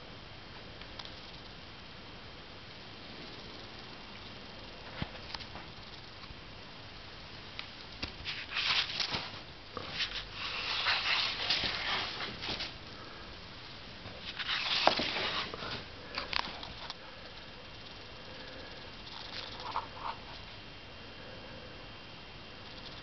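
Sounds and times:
small sharp clicks: 0.8 - 1.2
soft rustling: 7.9 - 13.0, 14.0 - 17.0.

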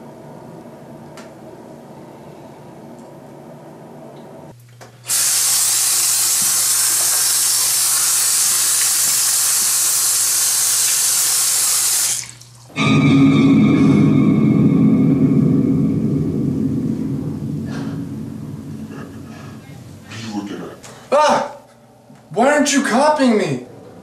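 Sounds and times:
faucet water running into basin: 5.1 - 12.7.

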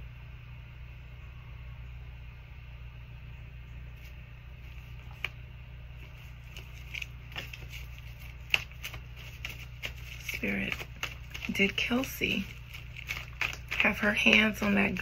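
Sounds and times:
steady low hum: 0.0 - 15.0
cards being shuffled: 4.0 - 5.4, 6.0 - 15.0.

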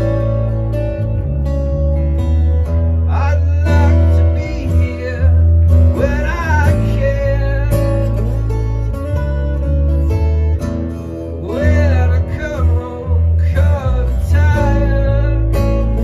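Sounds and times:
acoustic guitar strummed: 0.0 - 16.0
electric bass guitar: 0.0 - 16.0
man singing: 3.0 - 9.2, 9.8 - 16.0.

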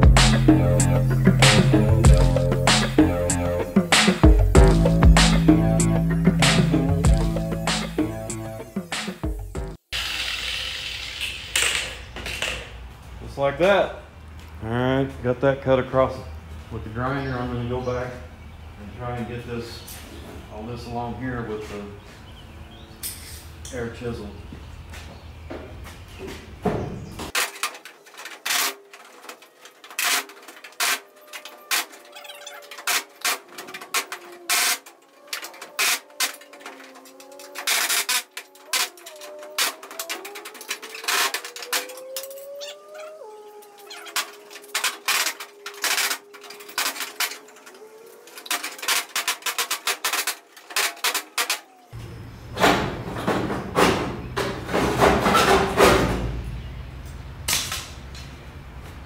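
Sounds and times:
sheet metal rattling and scraping: 27.4 - 51.7, 52.6 - 56.4.

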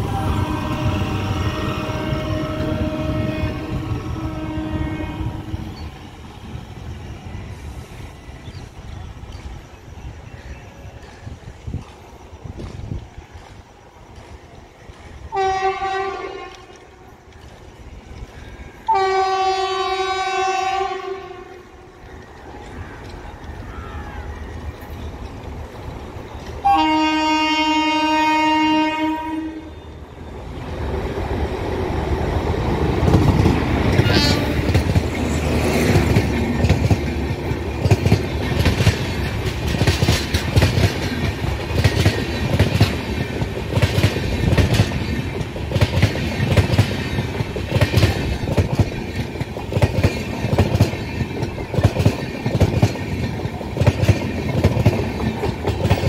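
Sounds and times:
locomotive horn blast: 0.0 - 5.7, 15.3 - 16.8, 18.8 - 21.7, 26.6 - 29.9, 33.9 - 34.8
train wheels clattering on rails: 0.0 - 20.3, 21.4 - 28.4, 30.2 - 56.0.

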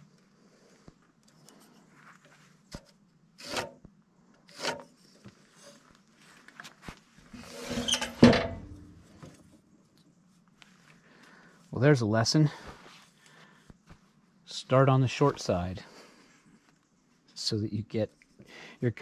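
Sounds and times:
metal square scraping timber: 3.4 - 3.8, 4.5 - 5.0, 7.3 - 9.4
pencil scratching on timber: 3.4 - 3.8.

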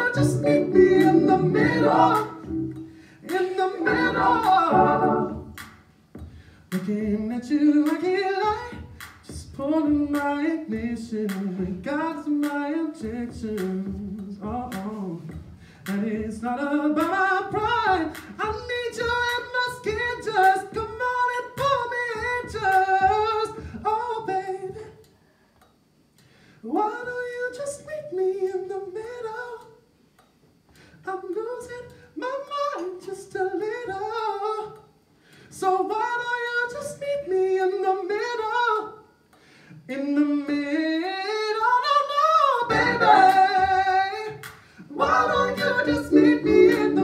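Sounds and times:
man singing unaccompanied: 0.0 - 5.5, 39.9 - 47.0.

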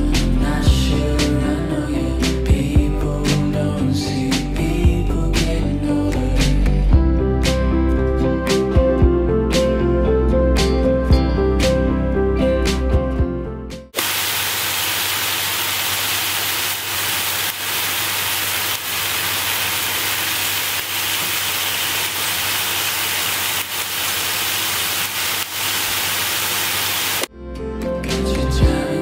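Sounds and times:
beef sizzling in a frying pan: 14.0 - 27.3.

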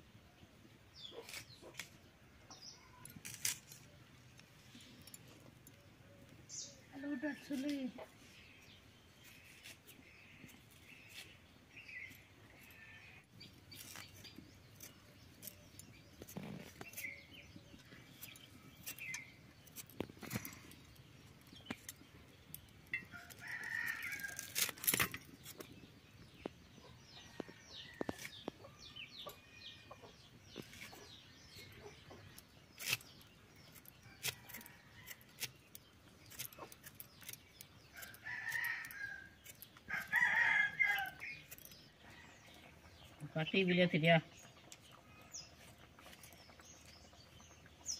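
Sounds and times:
blade cutting herbs: 1.1 - 2.0, 3.1 - 3.9, 13.7 - 20.7, 30.6 - 41.9.

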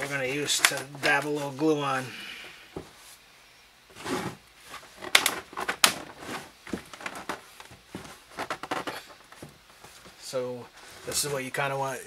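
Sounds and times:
plastic scraping: 0.0 - 1.6, 3.9 - 11.4.

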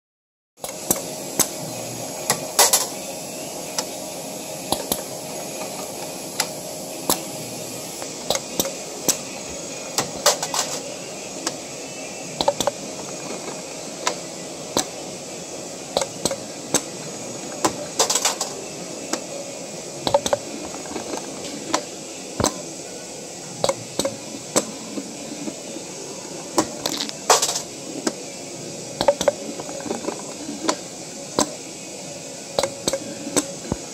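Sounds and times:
machine humming: 0.6 - 33.9.

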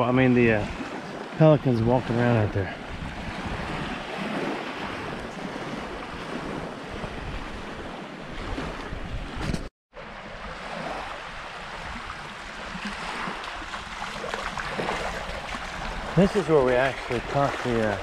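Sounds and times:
small waves washing on shore: 0.2 - 18.0
wind rushing over microphone: 2.4 - 9.7.

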